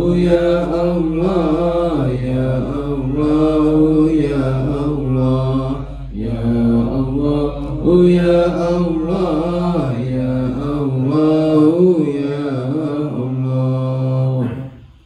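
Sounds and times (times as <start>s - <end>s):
men chanting together: 0.0s - 14.8s.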